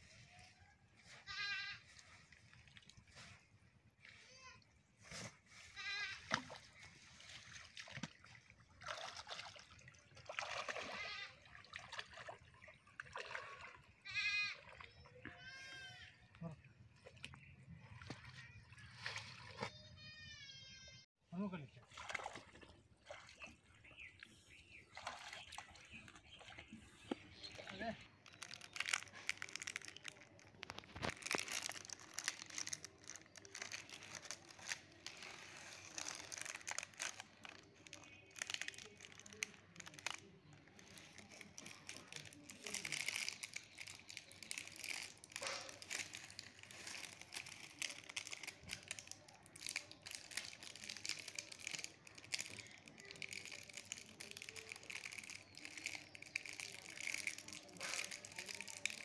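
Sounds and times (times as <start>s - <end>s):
net rustling through wet plants: 27.4s - 59.0s.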